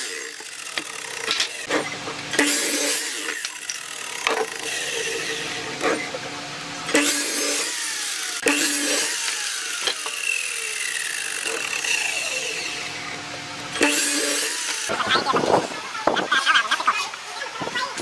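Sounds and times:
miter saw cutting wood: 0.0 - 17.6
saw motor whine spinning down: 2.4 - 15.0.

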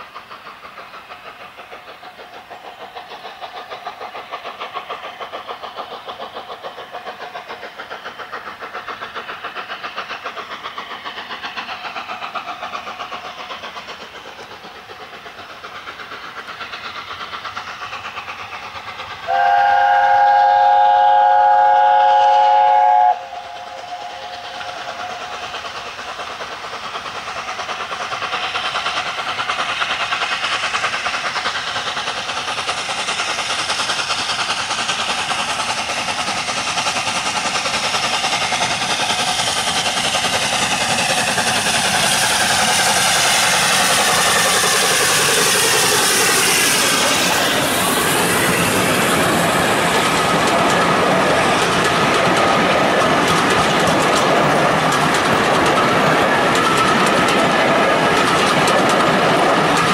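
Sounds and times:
steam exhaust beats: 0.0 - 59.9
train rumbling past: 0.0 - 59.9
steam locomotive chime whistle: 19.3 - 24.7.

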